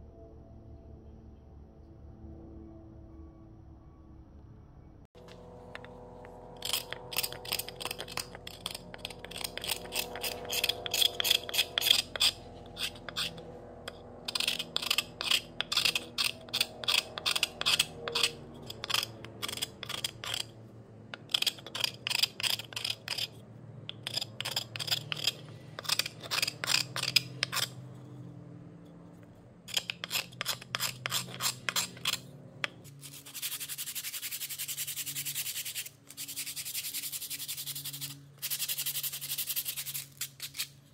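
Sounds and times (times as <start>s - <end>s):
faint background music: 0.0s - 5.1s
metal file rasping on wood: 5.3s - 28.3s, 29.7s - 40.7s
sandpaper rubbing on wood: 32.9s - 40.7s.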